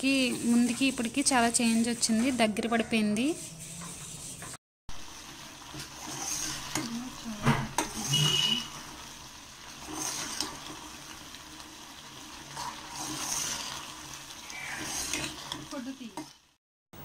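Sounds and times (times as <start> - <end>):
spatula scraping sticky food: 0.1 - 4.6, 14.7 - 15.6.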